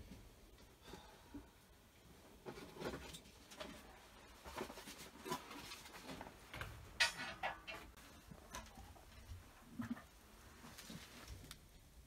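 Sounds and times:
rustling: 0:02.2 - 0:11.8.

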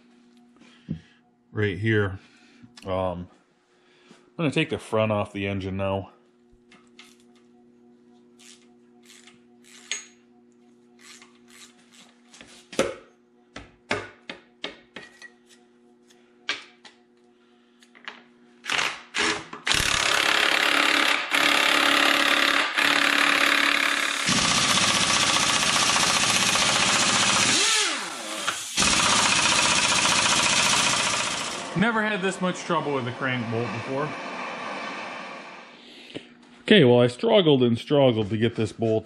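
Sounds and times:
impact wrench hammering: 0:19.6 - 0:31.8.

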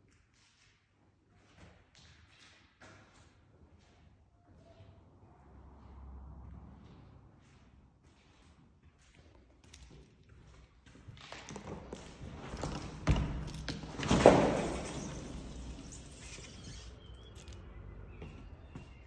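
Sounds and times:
door clunk with scraping rush: 0:12.4 - 0:16.5.

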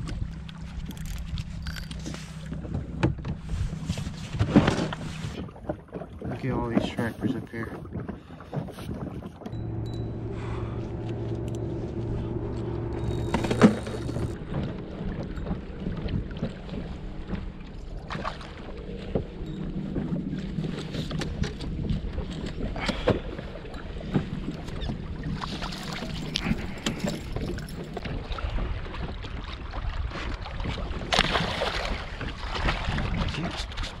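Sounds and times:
low steady hum: 0:00.0 - 0:05.4, 0:09.5 - 0:28.9
water splashing against boat: 0:00.0 - 0:34.0.

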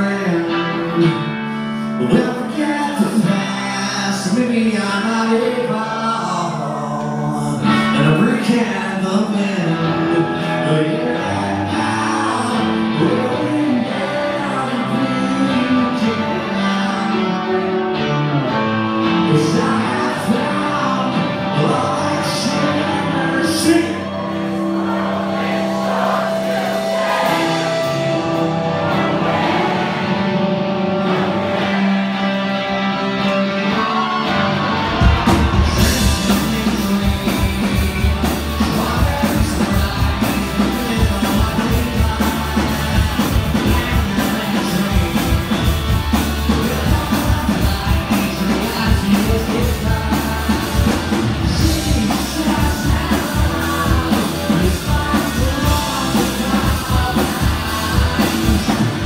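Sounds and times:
electric guitar: 0:00.0 - 0:59.0
person singing: 0:00.0 - 0:59.0
drums with steady beat: 0:24.9 - 0:29.8, 0:34.9 - 0:59.0.

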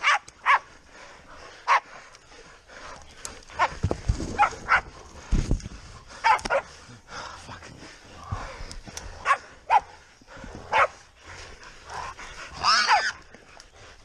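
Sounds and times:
dogs barking: 0:00.0 - 0:00.9, 0:01.6 - 0:02.0, 0:03.5 - 0:05.0, 0:06.1 - 0:06.8, 0:09.2 - 0:14.0.

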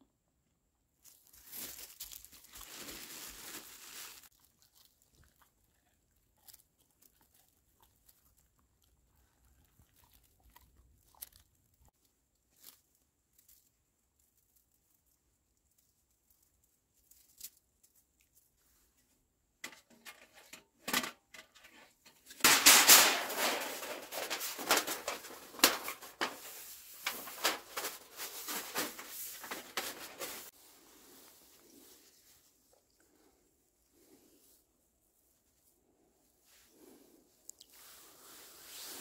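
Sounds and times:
metal stovepipe scraping and clattering: 0:19.6 - 0:30.5.

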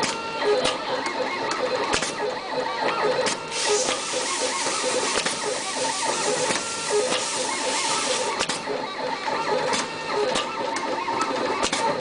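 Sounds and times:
wire stripping machine running: 0:03.2 - 0:08.7.

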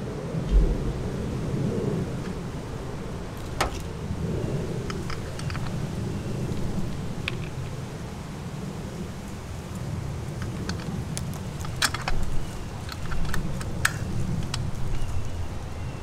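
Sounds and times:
steady low rumble: 0:00.0 - 0:07.2.

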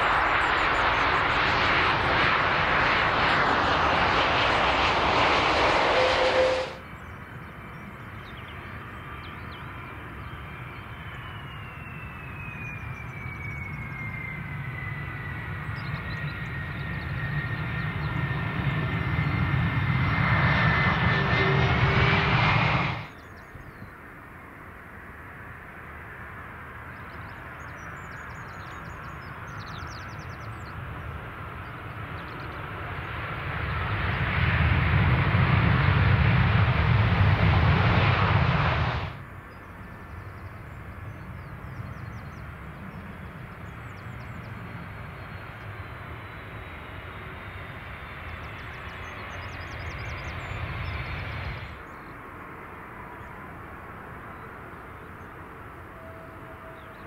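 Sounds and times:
jet engines deep rumble: 0:00.0 - 0:57.0.

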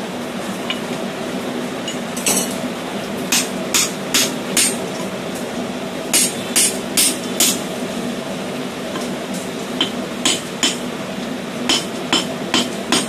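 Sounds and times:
hammer striking hot steel: 0:03.3 - 0:04.8, 0:06.1 - 0:07.6, 0:09.8 - 0:10.9, 0:11.7 - 0:13.0.

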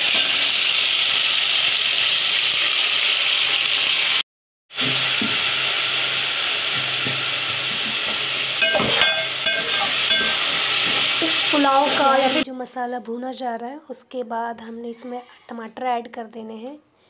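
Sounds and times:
paste sizzling in hot oil: 0:00.0 - 0:12.4.

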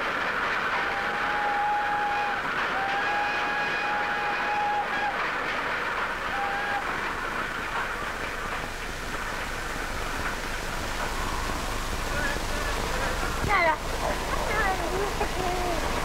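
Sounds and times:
moving train noise: 0:00.0 - 0:16.0
steam train whistle: 0:00.7 - 0:05.2, 0:06.3 - 0:07.0.

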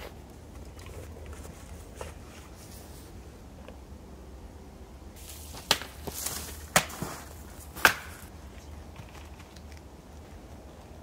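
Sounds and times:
snow rustling and crunching: 0:05.2 - 0:08.4.

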